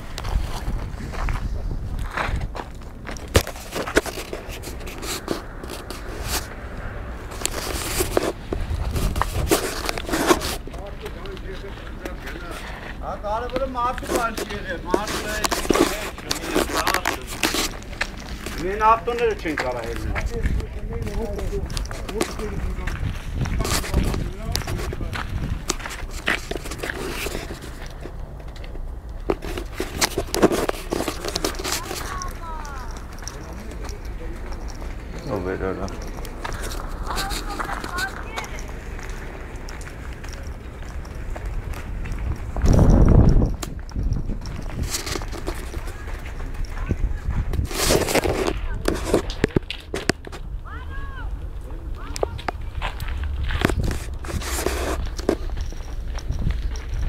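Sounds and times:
handling scrapes and knocks: 0:02.1 - 0:50.4, 0:53.4 - 0:57.0
camera handling noise: 0:03.1 - 0:10.6, 0:23.4 - 0:34.9.

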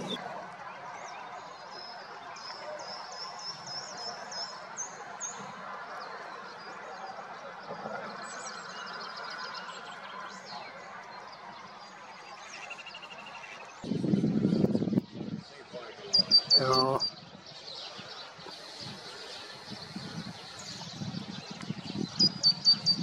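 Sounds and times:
songbirds calling: 0:00.0 - 0:00.3, 0:01.0 - 0:23.0
bird trill: 0:16.1 - 0:17.2, 0:22.1 - 0:23.0.

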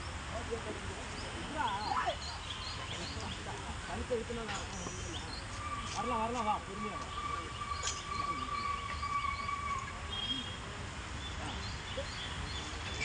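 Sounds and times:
distant voices: 0:00.0 - 0:13.0
long whistle-like tone: 0:05.6 - 0:10.6.

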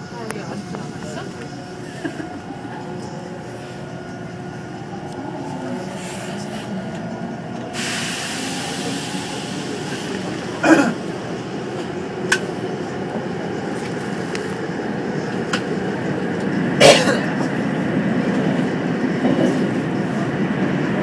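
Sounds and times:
train wheels rumbling on rail: 0:00.0 - 0:21.0
high hiss: 0:07.7 - 0:10.6.

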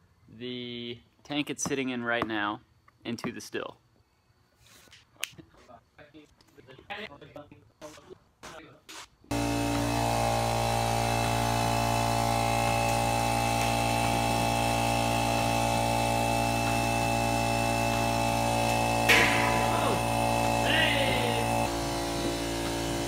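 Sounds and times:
electric pump humming: 0:09.3 - 0:23.0.

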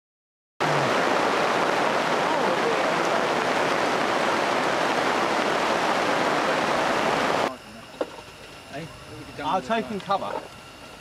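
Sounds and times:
heavy rain falling: 0:00.6 - 0:07.5.

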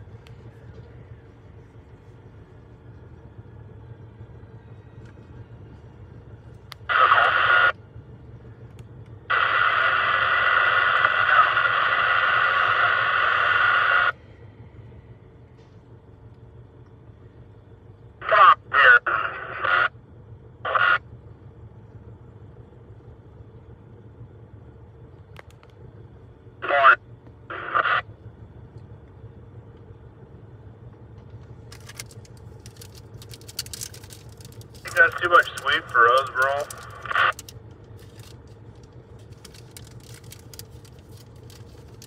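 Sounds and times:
low engine hum: 0:00.0 - 0:42.0
garbled radio voice chatter: 0:06.8 - 0:07.8, 0:09.3 - 0:14.1, 0:18.2 - 0:20.0, 0:20.6 - 0:21.1, 0:26.6 - 0:28.1, 0:34.8 - 0:37.4.

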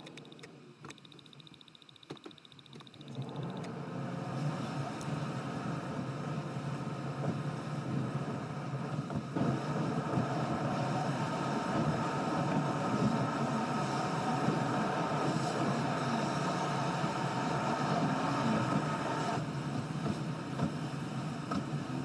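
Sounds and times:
car engine and tyres on road: 0:02.1 - 0:22.0.

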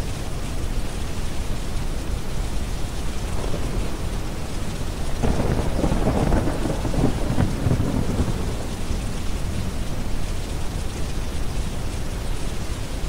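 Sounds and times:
deep brown-noise hiss: 0:00.0 - 0:13.0
steady rain: 0:00.0 - 0:13.0
thunder rolling: 0:05.1 - 0:10.0.

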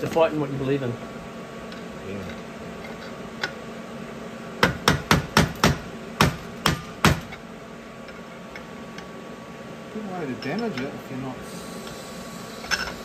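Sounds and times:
hammer striking steel punch: 0:04.6 - 0:07.3.

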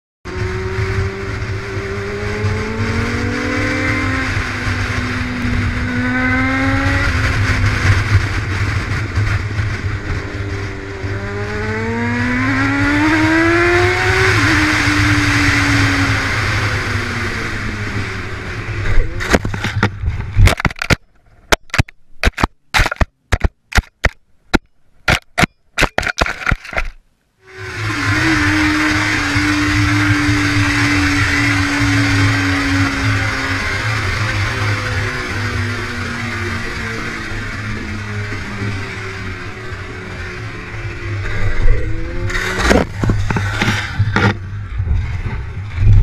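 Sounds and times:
wind noise: 0:00.3 - 0:24.1, 0:27.6 - 0:46.0
motorcycle engine accelerating: 0:00.3 - 0:24.2, 0:26.3 - 0:46.0
motorcycle crashing knocks and scrapes: 0:18.8 - 0:24.2, 0:41.4 - 0:46.0.

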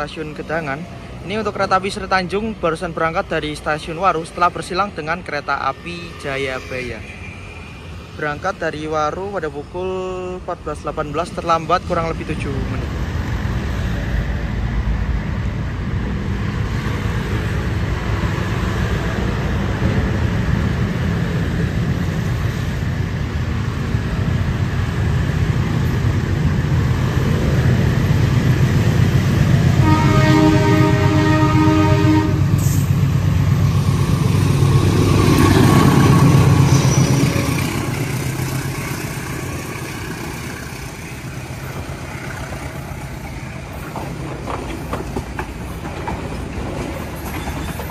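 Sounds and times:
diesel locomotive engine rumble: 0:00.0 - 0:47.9
train coaches rolling by: 0:00.0 - 0:47.9
train horn: 0:29.7 - 0:32.8.

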